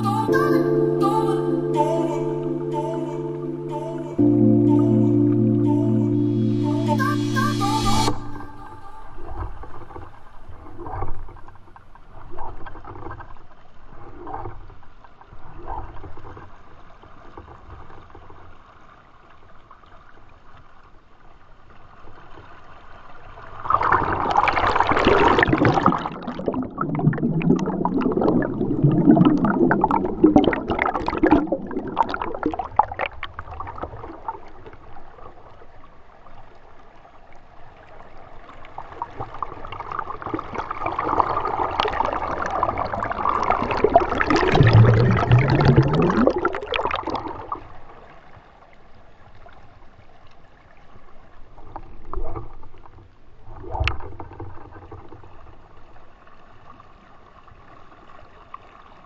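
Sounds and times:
underwater bubbling: 0:23.7 - 0:35.6, 0:38.6 - 0:48.2.

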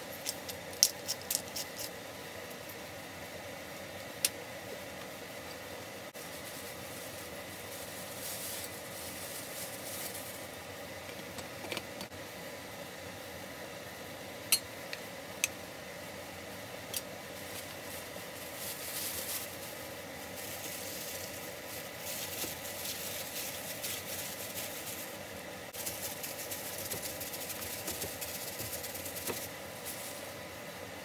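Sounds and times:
steady low hum: 0:00.0 - 0:31.0
plastic glove crinkling: 0:06.2 - 0:10.6, 0:17.3 - 0:30.4.

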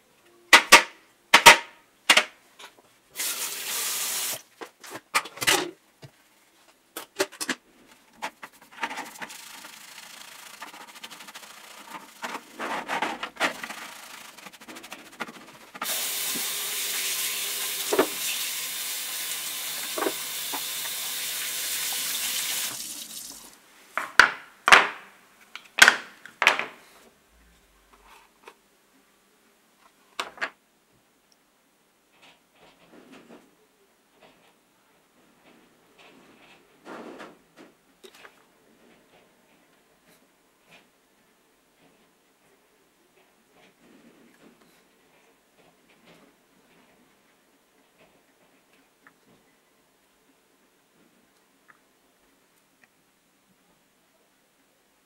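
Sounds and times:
brief water spray: 0:03.2 - 0:04.4, 0:13.4 - 0:23.6
tap water running: 0:03.2 - 0:04.4, 0:09.0 - 0:12.6, 0:13.2 - 0:23.6
plastic parts clattering on tray: 0:08.2 - 0:09.7, 0:11.9 - 0:13.9
scrubbing and rubbing: 0:08.2 - 0:23.5.

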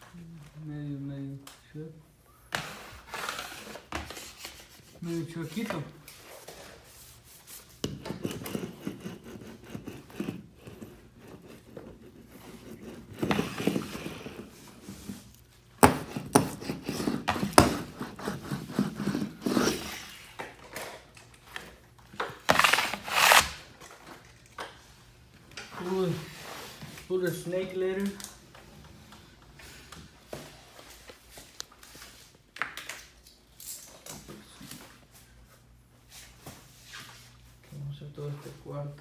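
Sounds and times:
rubbing and scraping handling noise: 0:02.5 - 0:24.4, 0:25.6 - 0:28.3.

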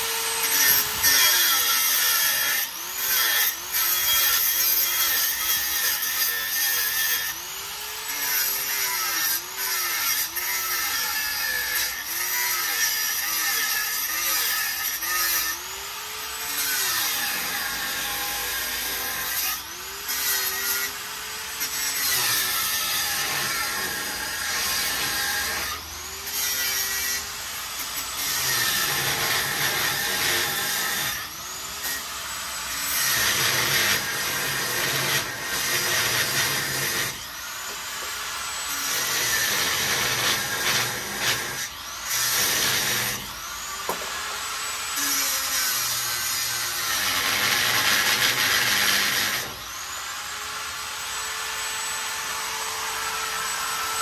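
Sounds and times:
loud rasping working noise: 0:00.0 - 0:54.0
power tool motor whine: 0:14.7 - 0:54.0.

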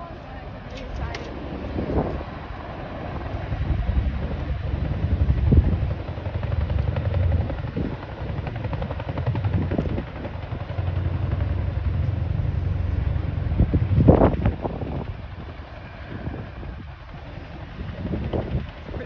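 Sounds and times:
helicopter rotor throb: 0:00.0 - 0:19.0.

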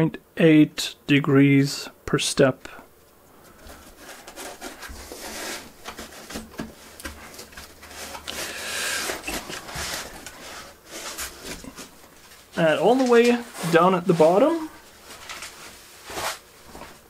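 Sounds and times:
rustle of plastic bags and foam: 0:03.5 - 0:17.0.

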